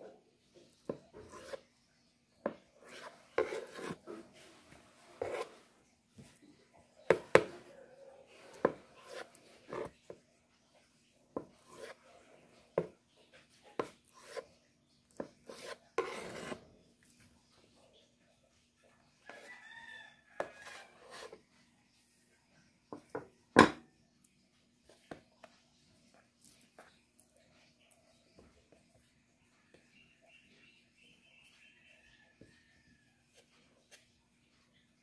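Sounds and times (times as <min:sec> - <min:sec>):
knife cutting tofu: 0:15.2 - 0:16.6.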